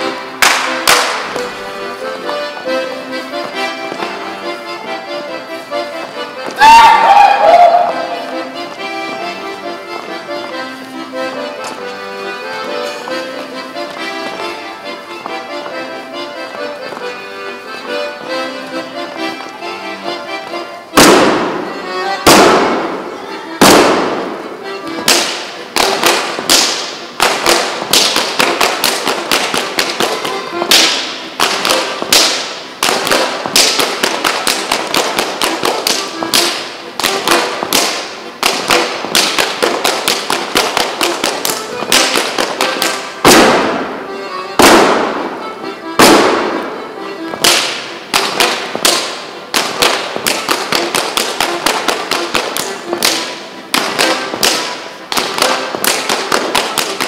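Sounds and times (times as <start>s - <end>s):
dancers slapping thighs and shoes: 0.0s - 6.8s, 23.6s - 43.9s, 44.6s - 57.0s
live band music: 0.0s - 57.0s
clapping and stomping: 0.4s - 1.5s, 25.0s - 43.8s, 47.4s - 57.0s.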